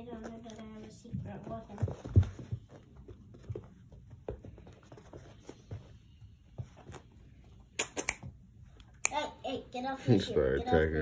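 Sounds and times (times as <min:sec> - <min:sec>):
puppy scuffling on carpet: 0:00.0 - 0:07.6.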